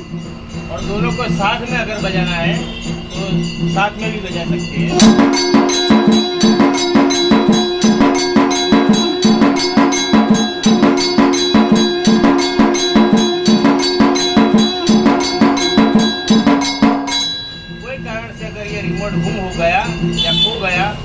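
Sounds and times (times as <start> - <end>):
mechanical strikers on drum and bell: 0.0 - 21.0
steady conch-like tone: 4.9 - 18.3.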